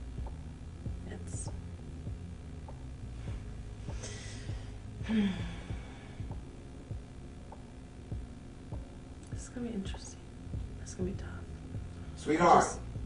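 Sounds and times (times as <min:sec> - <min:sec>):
steady low hum: 0:00.0 - 0:13.0
woman sighing: 0:04.0 - 0:06.1.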